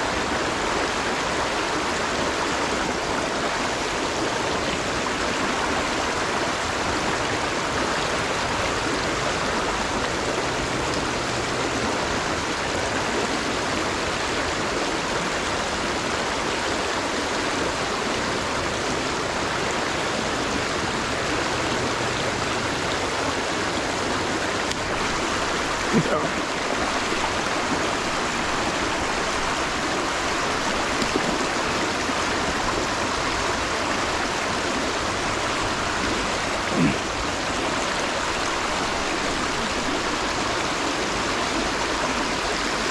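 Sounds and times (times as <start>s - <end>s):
river water rushing: 0.0s - 42.9s.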